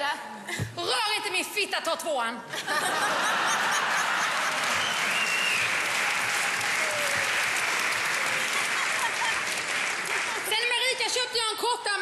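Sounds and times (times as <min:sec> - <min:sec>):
audience applauding: 0:03.3 - 0:10.9.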